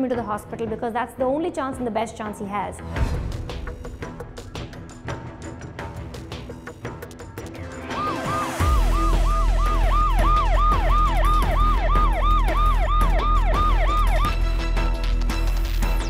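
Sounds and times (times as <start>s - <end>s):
ambulance siren yelping: 7.6s - 14.6s.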